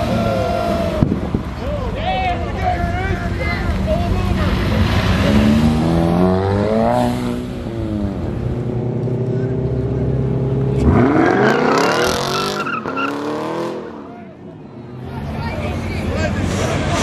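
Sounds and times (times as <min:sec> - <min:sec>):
car engine revving: 0:03.7 - 0:14.1
tire squeal: 0:11.2 - 0:13.5.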